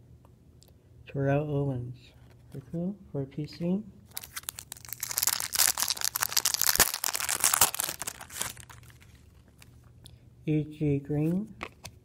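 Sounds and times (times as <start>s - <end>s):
foil wrapper crinkling and tearing: 4.1s - 9.7s.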